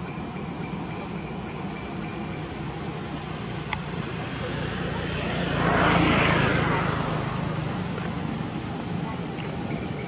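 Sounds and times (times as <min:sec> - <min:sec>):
insects droning: 0:00.0 - 0:10.0
engine passing by: 0:03.4 - 0:10.0.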